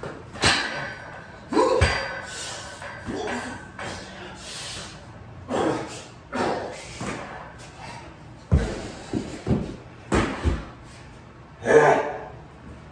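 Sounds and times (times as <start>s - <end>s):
heavy thuds on steel rack: 0.3s - 3.4s.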